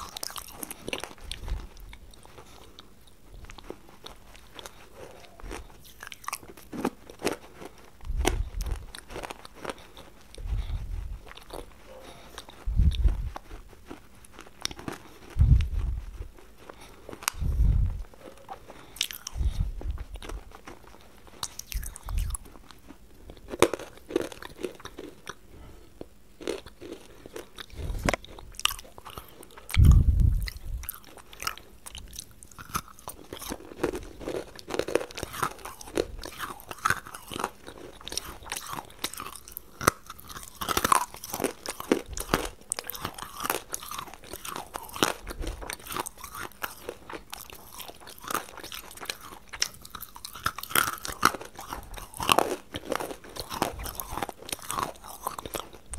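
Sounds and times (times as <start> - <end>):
crunching bites: 0.0 - 25.4, 26.4 - 55.9
chewing: 0.0 - 55.9
dull low bumps: 10.4 - 11.3, 12.6 - 13.4, 15.4 - 16.2, 29.8 - 30.9.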